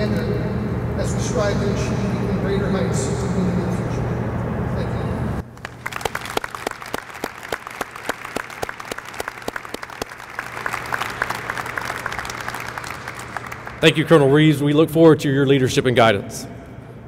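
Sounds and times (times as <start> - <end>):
low hum: 0.0 - 5.9
audience applauding: 5.4 - 14.1.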